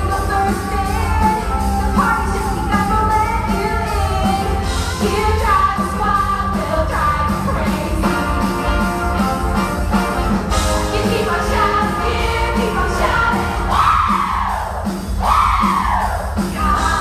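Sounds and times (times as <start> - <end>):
upbeat rock and roll music: 0.0 - 17.0
group of voices singing: 4.3 - 8.7, 10.7 - 17.0.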